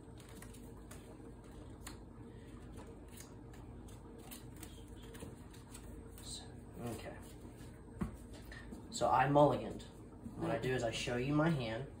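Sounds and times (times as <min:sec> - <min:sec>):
low room hum: 0:00.0 - 0:12.0
trading cards clicking and flicking: 0:02.7 - 0:07.0.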